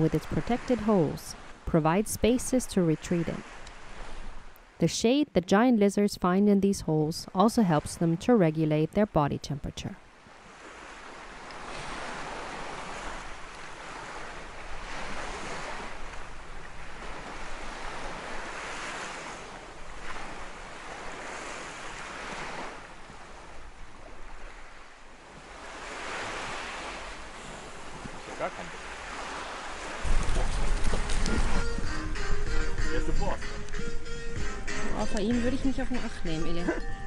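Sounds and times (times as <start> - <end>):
wind: 0.0 - 37.0
surf washing onto beach: 10.3 - 32.4.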